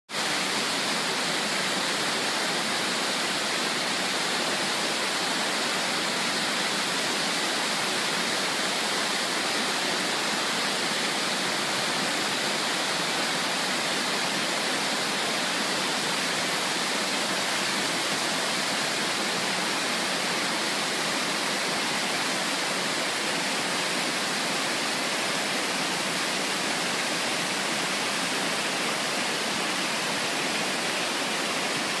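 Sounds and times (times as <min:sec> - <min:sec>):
waterfall rushing: 0:00.1 - 0:32.0.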